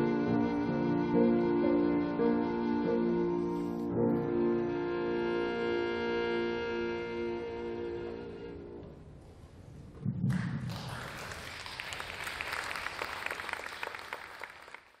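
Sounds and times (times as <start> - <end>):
audience applause: 10.3 - 15.0.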